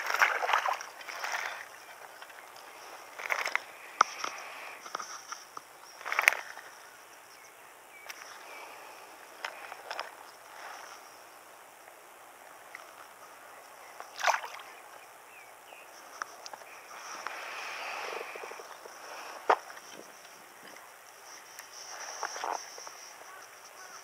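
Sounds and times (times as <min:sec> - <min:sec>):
light water splashes: 0:00.0 - 0:04.4, 0:12.4 - 0:15.1.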